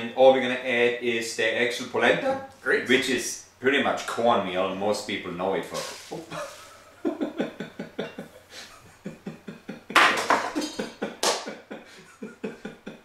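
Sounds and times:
men laughing: 0:06.1 - 0:13.0.

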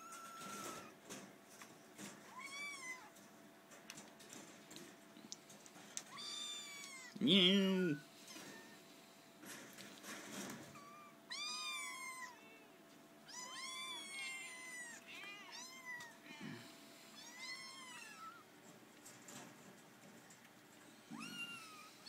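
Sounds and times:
kittens meowing: 0:00.0 - 0:01.0, 0:02.3 - 0:03.1, 0:06.1 - 0:08.8, 0:10.7 - 0:16.6, 0:17.2 - 0:18.5, 0:21.0 - 0:22.0.

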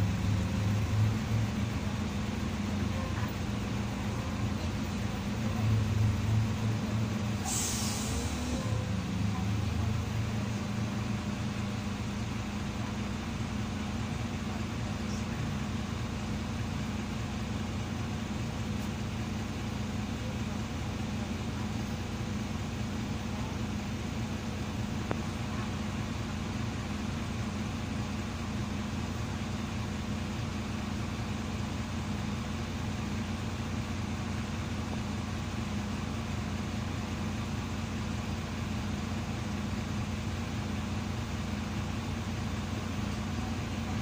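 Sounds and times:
bus diesel engine idling: 0:00.0 - 0:44.0.

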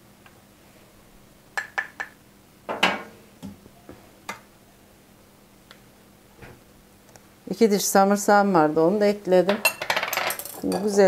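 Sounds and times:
spoon and dishes clinking on glass: 0:09.5 - 0:11.0.

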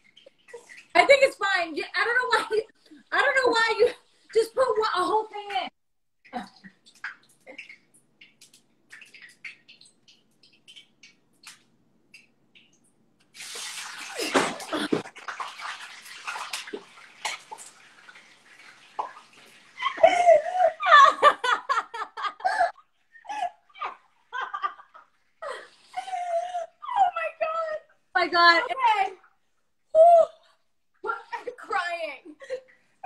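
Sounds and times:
women laughing: 0:19.8 - 0:22.7, 0:23.3 - 0:27.1.

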